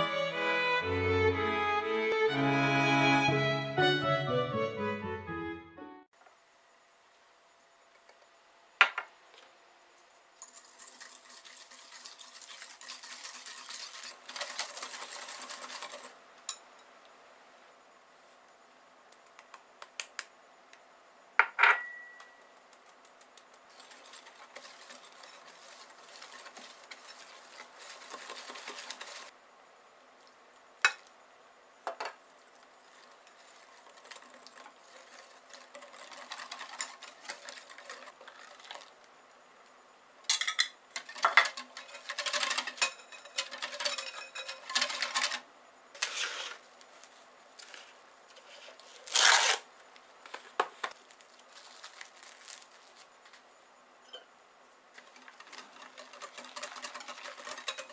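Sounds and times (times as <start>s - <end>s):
flour sifting through mesh sieve: 10.4s - 16.2s, 23.6s - 29.4s, 32.4s - 39.0s, 41.0s - 45.4s, 46.0s - 49.5s, 54.9s - 57.9s
whisk clinking against glass bowl: 41.0s - 45.4s, 55.4s - 57.9s.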